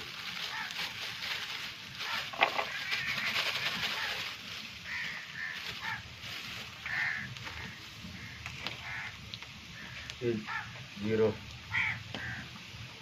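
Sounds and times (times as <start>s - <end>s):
plastic bag rustling: 0.0s - 9.2s
crows cawing: 0.4s - 1.0s, 2.0s - 10.9s, 11.6s - 12.6s.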